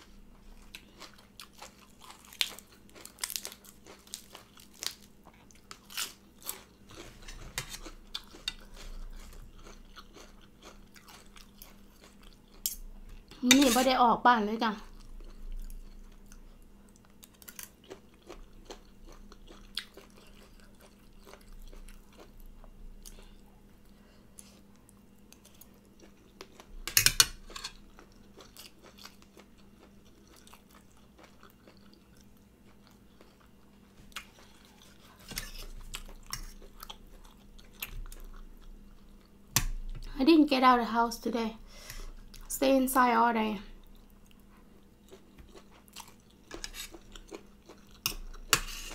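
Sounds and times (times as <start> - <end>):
close-up chewing with crunches: 0.5 - 13.4, 14.9 - 23.4, 27.4 - 39.9, 43.8 - 48.9.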